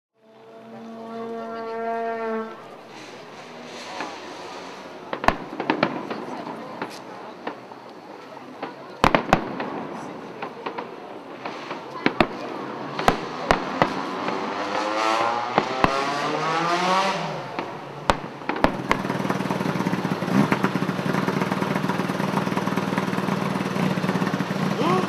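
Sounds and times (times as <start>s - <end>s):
racing car engine revving: 0.2s - 5.4s, 12.5s - 17.8s
sharp firework bangs: 2.9s - 7.8s, 8.6s - 21.1s.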